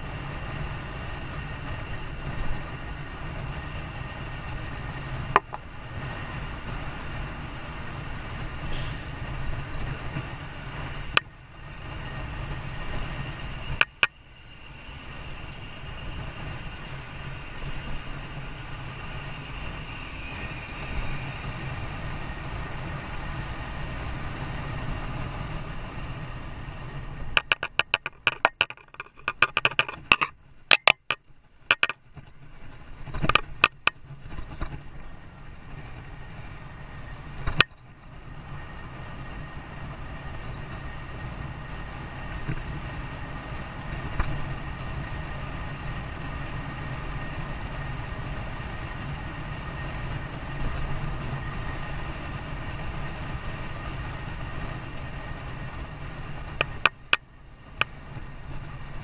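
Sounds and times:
vehicle rumbling in motion: 0:00.0 - 0:59.0
sharp clicks and knocks: 0:05.3 - 0:05.6, 0:13.7 - 0:14.2, 0:27.3 - 0:32.3, 0:33.0 - 0:34.8, 0:56.5 - 0:57.2.

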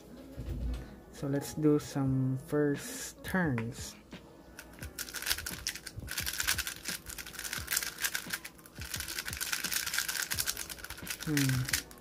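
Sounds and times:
puzzle cube plastic clicks: 0:04.6 - 0:12.0.

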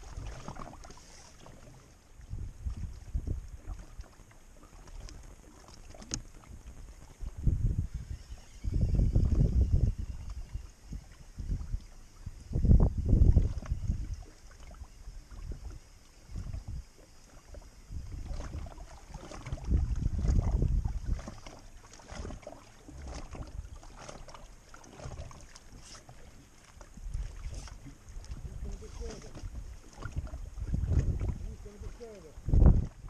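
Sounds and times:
water lapping: 0:00.0 - 0:33.0
wind buffeting microphone: 0:02.2 - 0:03.8, 0:06.1 - 0:14.3, 0:15.3 - 0:16.9, 0:17.6 - 0:24.2, 0:26.9 - 0:33.0.

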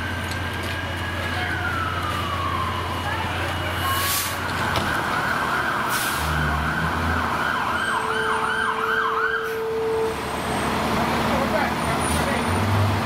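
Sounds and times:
low engine rumble: 0:00.0 - 0:06.0
siren yelping: 0:00.6 - 0:10.2.

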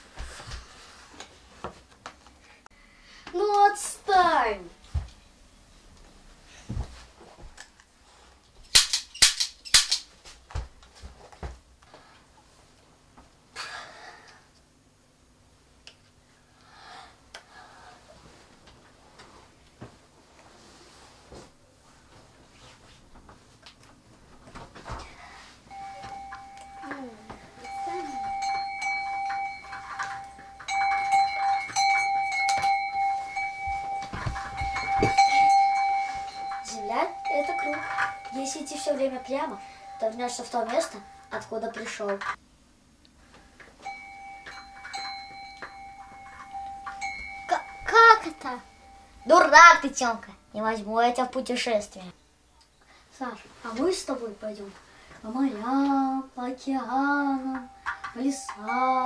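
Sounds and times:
sharp cracks: 0:08.7 - 0:10.1
bell-like ringing tone: 0:25.7 - 0:41.6, 0:43.8 - 0:49.8, 0:57.0 - 0:59.0.

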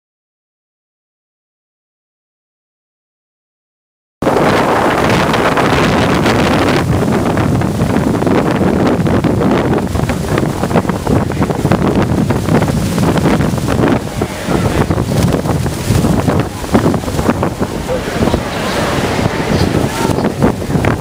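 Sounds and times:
waterfall roaring: 0:04.2 - 0:21.0
wind buffeting microphone: 0:04.2 - 0:21.0.

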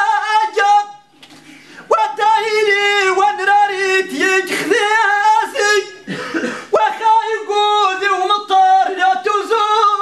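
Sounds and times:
man singing unaccompanied: 0:00.0 - 0:01.1, 0:01.9 - 0:10.0.

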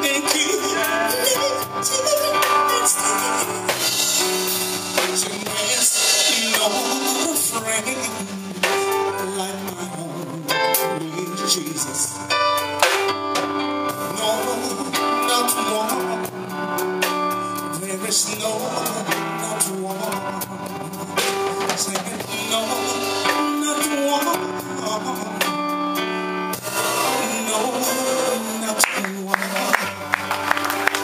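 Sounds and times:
man singing into a microphone: 0:00.0 - 0:12.4, 0:13.9 - 0:31.0
drum kit and cymbal hits: 0:00.0 - 0:31.0
electronic keyboard chords: 0:00.0 - 0:31.0.

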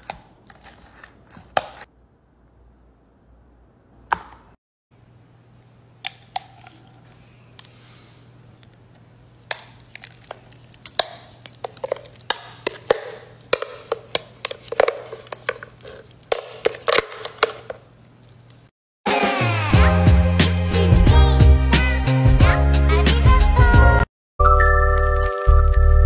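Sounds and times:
spoon scraping plastic blender jar: 0:00.0 - 0:01.9, 0:09.9 - 0:17.8.

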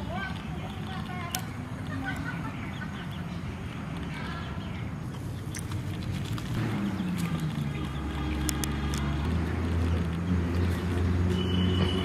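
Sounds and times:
vehicle engine droning: 0:02.6 - 0:12.0.

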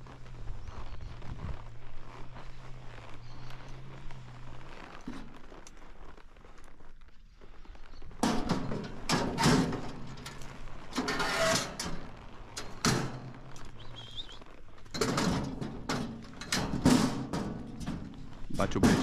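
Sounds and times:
steel gate clanging: 0:08.2 - 0:13.5, 0:14.9 - 0:19.0
metal chute rattling: 0:08.2 - 0:14.2, 0:14.8 - 0:19.0.

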